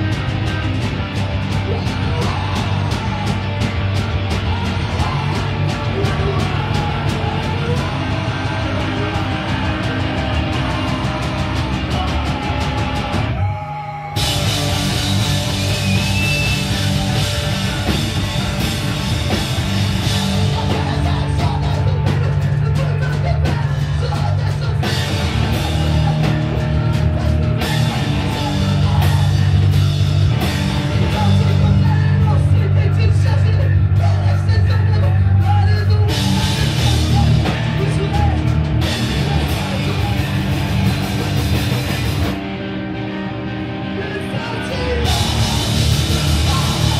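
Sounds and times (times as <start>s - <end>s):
punk band playing live: 0.0s - 46.9s
person shouting vocals: 13.2s - 14.4s.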